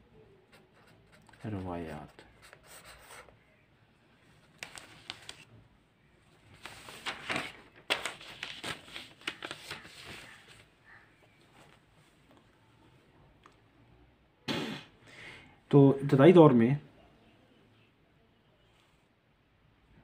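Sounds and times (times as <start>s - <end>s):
paper rustling: 4.4s - 5.5s, 6.4s - 12.4s.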